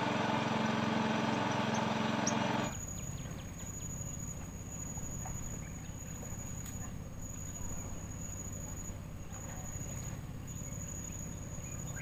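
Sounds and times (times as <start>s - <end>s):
small engine running: 0.0s - 6.7s
insects chirring: 0.0s - 12.0s
faint insect chirps: 1.4s - 12.0s.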